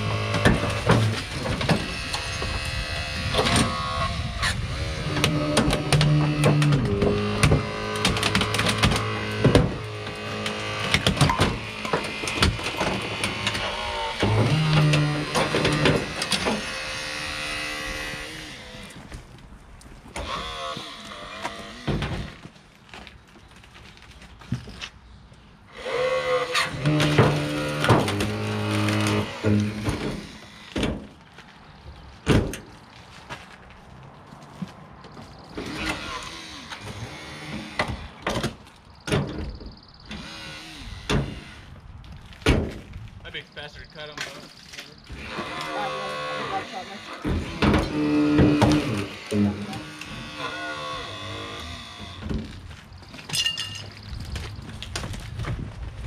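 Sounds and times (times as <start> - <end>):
metal creaking: 0.0 - 25.0, 25.7 - 31.5, 44.2 - 56.0
sharp cracks of car body: 5.2 - 13.6, 32.2 - 32.8, 36.7 - 40.2, 42.3 - 43.0
wavering creak: 20.2 - 22.4, 35.6 - 38.2, 45.0 - 53.2
motorised rescue tool whining: 45.0 - 52.3.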